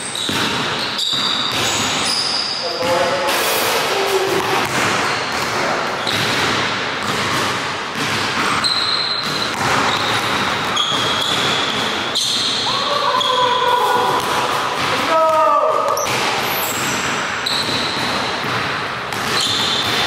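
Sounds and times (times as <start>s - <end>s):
basketball bouncing on hardwood floor: 0.0s - 2.1s, 4.4s - 12.6s, 14.2s - 20.0s
shoe squeaks: 0.0s - 3.2s, 5.0s - 6.4s, 8.4s - 14.0s, 15.9s - 18.2s, 19.2s - 20.0s.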